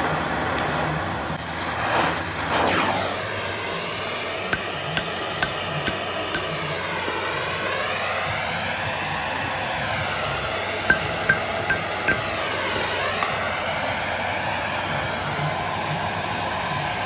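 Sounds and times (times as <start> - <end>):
hammer blows on steel: 4.6 - 6.6, 10.9 - 12.4.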